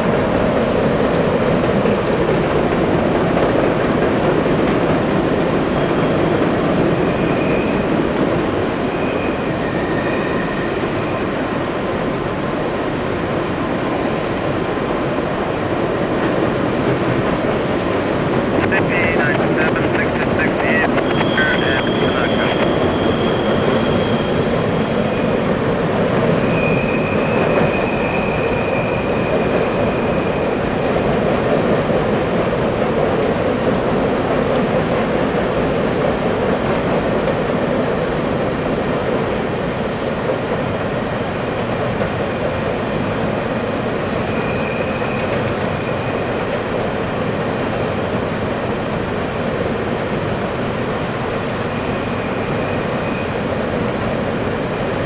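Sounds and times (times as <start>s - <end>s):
train wheels rumbling on rail: 0.0s - 55.0s
faint high squealing: 21.0s - 25.3s.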